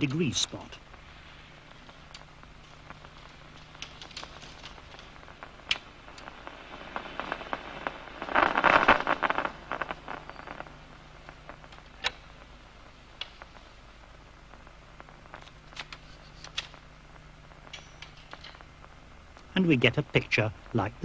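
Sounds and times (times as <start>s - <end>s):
crackling clicks from audio monitor: 0.0s - 20.8s.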